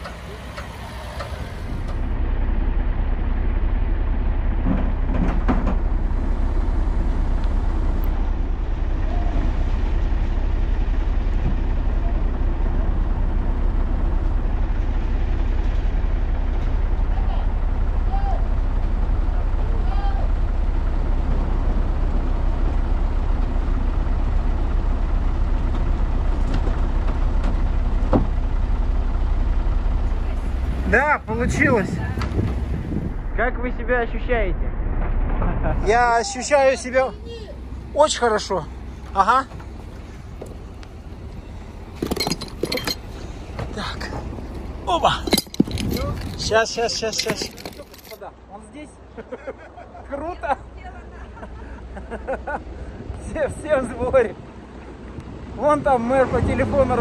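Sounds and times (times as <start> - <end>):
heavy vehicle engine rumbling: 0.0 - 57.0.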